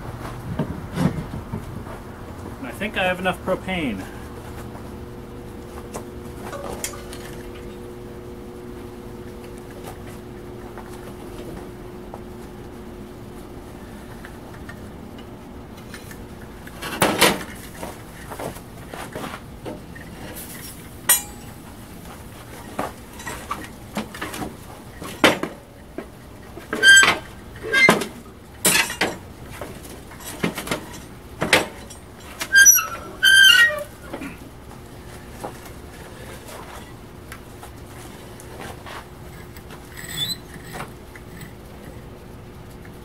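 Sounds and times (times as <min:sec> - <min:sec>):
metal lid clanking against steel: 0:06.4 - 0:07.7, 0:21.1 - 0:21.6, 0:28.6 - 0:29.2.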